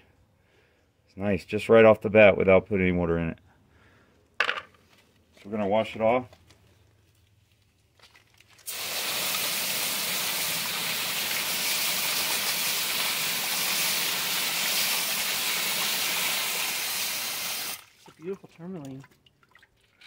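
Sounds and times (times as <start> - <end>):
hose nozzle spraying water on rocks: 8.6 - 17.9.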